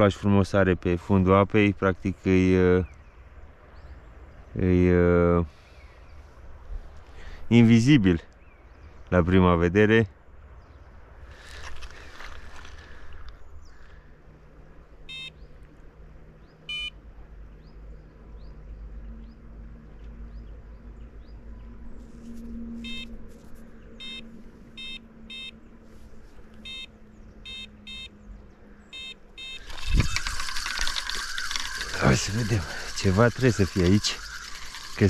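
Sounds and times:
bite alarm beeping: 0:15.1 - 0:15.5, 0:16.7 - 0:17.0, 0:22.8 - 0:23.2, 0:24.0 - 0:25.6, 0:26.6 - 0:28.2, 0:28.9 - 0:35.0.

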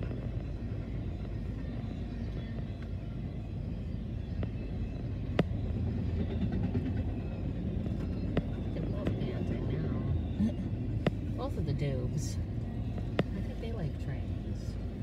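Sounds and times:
freight train rumbling past: 0:05.1 - 0:15.0.

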